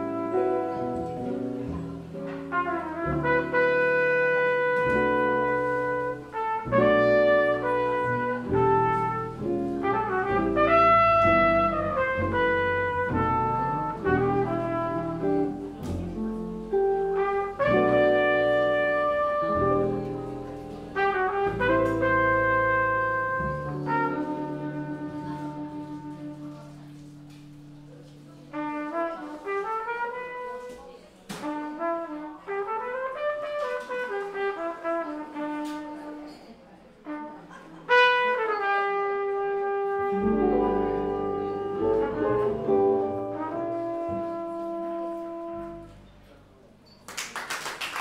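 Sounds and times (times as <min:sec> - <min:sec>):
double bass: 0:00.0 - 0:30.6, 0:37.9 - 0:46.8
trumpet playing jazz ballad: 0:00.0 - 0:46.4
guitar: 0:04.4 - 0:28.4, 0:39.6 - 0:44.4
applause: 0:47.0 - 0:48.0.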